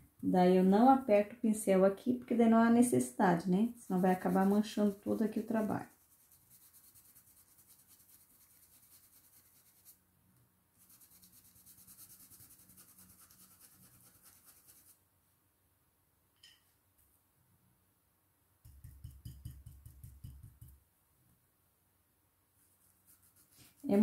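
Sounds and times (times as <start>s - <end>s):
stencil brush dabbing: 3.7s - 10.0s, 10.8s - 15.0s, 18.6s - 20.8s, 22.6s - 24.0s.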